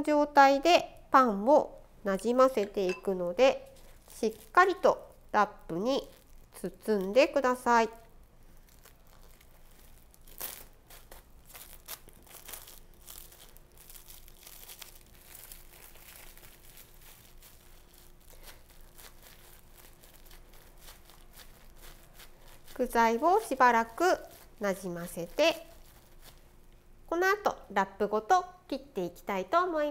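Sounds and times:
cling film crinkling: 3.8 - 26.8.

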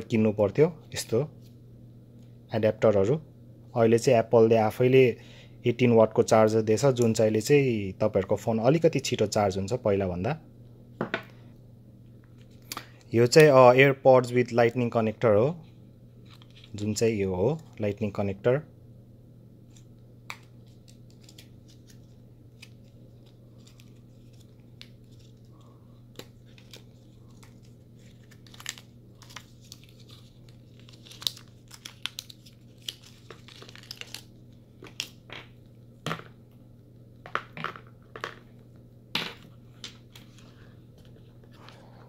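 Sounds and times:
packaging crinkling and rustling: 20.6 - 35.2.

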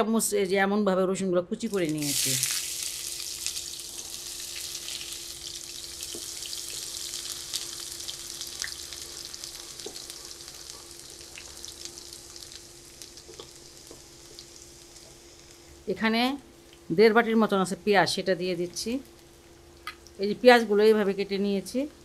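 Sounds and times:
garlic sizzling in hot oil: 1.7 - 15.7.

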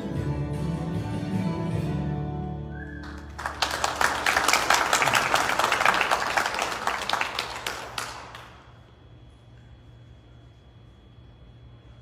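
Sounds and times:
audience applauding: 3.0 - 8.7.

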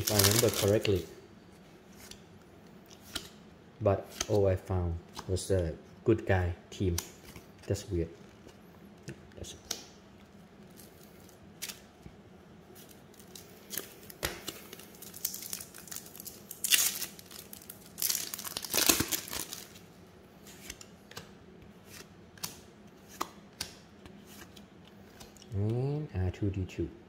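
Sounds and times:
card pack wrapper tearing: 0.0 - 1.0, 14.7 - 19.8.

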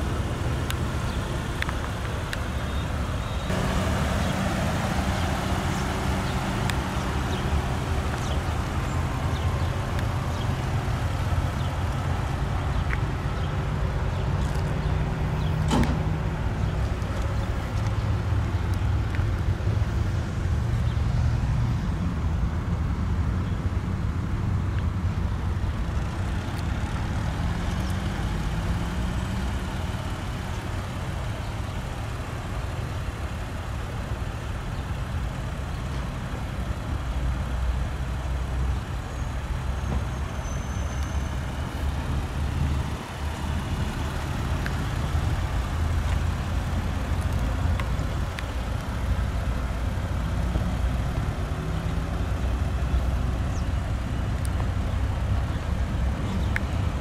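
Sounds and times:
traffic rumble: 0.0 - 57.0
engine rising in pitch: 2.7 - 12.6.

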